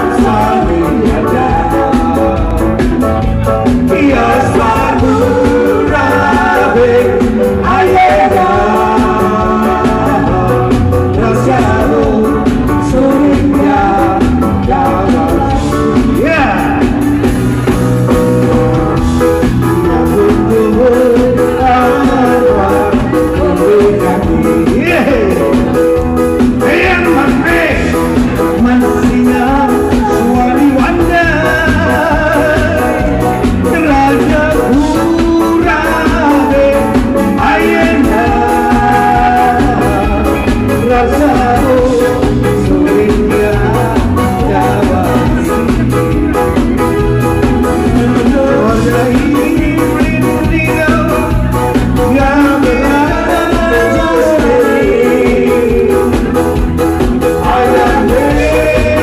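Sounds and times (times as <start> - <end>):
live band with drums: 0.0 - 59.0
person singing into microphone: 0.0 - 59.0.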